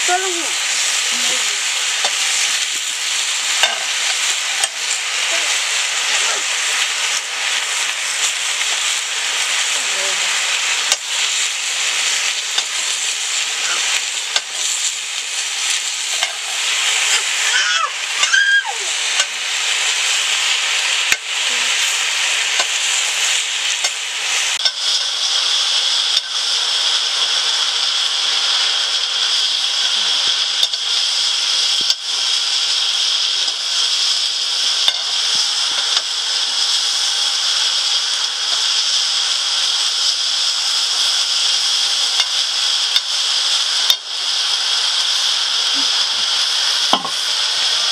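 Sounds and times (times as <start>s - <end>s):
greens sizzling in a pan: 0.0s - 47.9s
stirring knocks: 46.9s - 47.2s.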